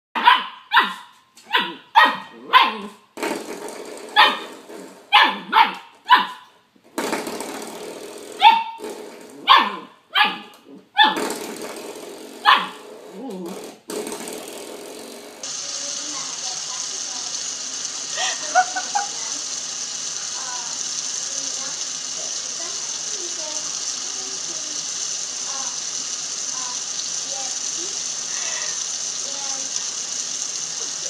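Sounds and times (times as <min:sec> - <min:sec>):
small dog barking: 0:00.2 - 0:03.0, 0:04.2 - 0:04.5, 0:05.1 - 0:06.5, 0:08.4 - 0:08.8, 0:09.4 - 0:11.2, 0:12.4 - 0:12.8.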